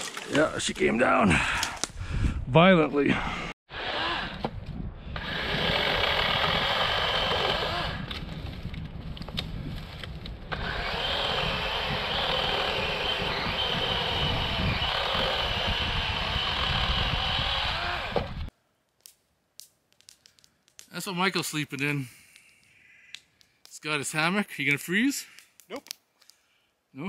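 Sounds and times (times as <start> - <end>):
chainsaw cutting wood: 3.7 - 4.5, 5.2 - 8.2, 10.5 - 18.5.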